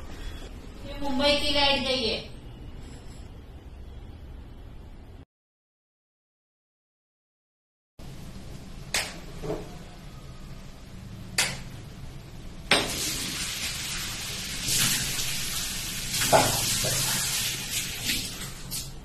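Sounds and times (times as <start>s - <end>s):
water running into a sink: 12.7s - 19.0s
water splashed onto a face: 12.8s - 19.0s.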